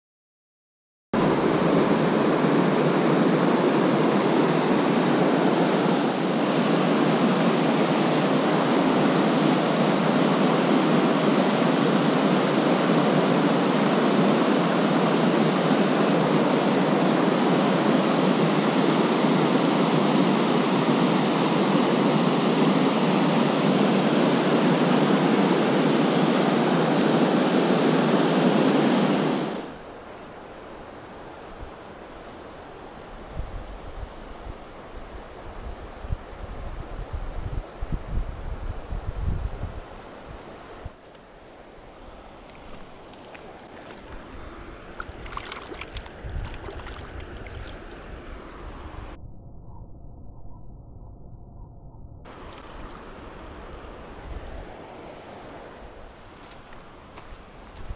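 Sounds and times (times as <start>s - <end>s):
river water rushing over rocks: 41.8s - 48.9s.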